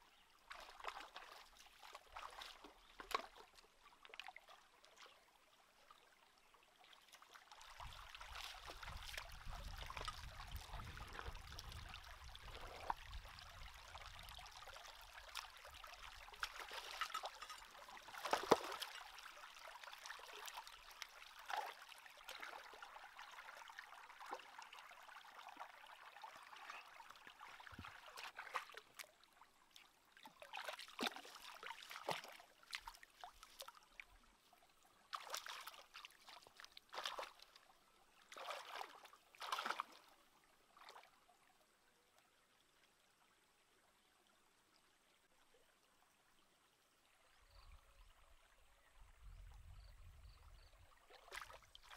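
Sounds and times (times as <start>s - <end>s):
stream trickling over rocks: 0.0s - 51.9s
splashes and knocks in water: 0.5s - 4.5s, 7.5s - 13.3s, 15.3s - 20.8s, 21.4s - 22.8s, 27.5s - 29.1s, 30.2s - 33.8s, 35.1s - 37.6s, 38.3s - 40.1s, 51.1s - 51.9s.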